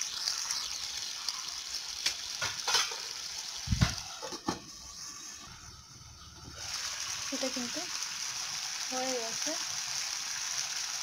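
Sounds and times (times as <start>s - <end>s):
curry simmering and sizzling in a pan: 0.0s - 11.0s
steel lid knocking and clattering: 2.4s - 3.0s.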